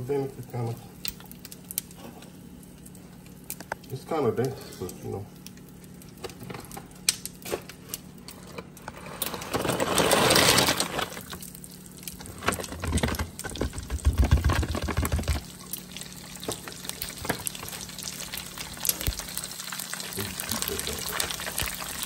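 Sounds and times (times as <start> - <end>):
crackling sizzle of frying: 0.0 - 22.0
pellets pouring from plastic bag: 8.9 - 11.4.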